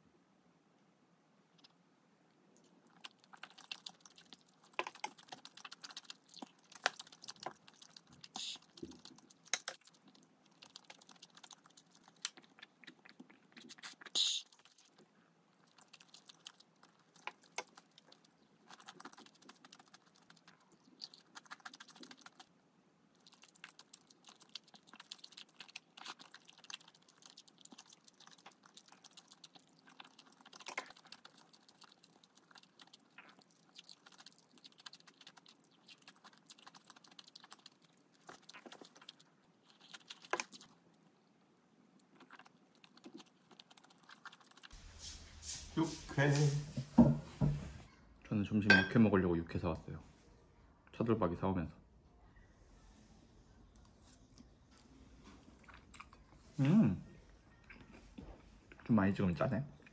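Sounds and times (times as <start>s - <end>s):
chewing: 2.6s - 44.8s, 53.7s - 58.9s.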